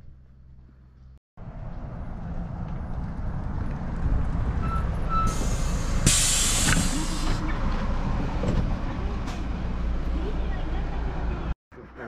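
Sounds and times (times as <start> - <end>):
bus engine idling: 2.8 - 12.0
air brake hiss: 5.3 - 7.4.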